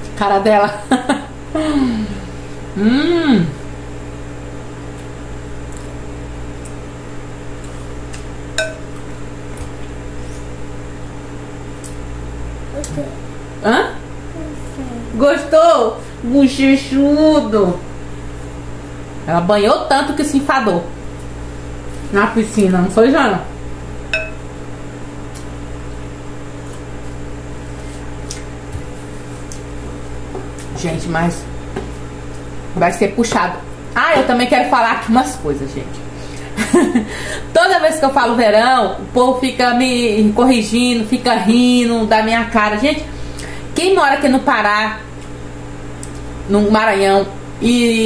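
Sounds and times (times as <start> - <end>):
electrical hum: 0.0 - 48.0
cups and dishes clinking: 24.2 - 24.4.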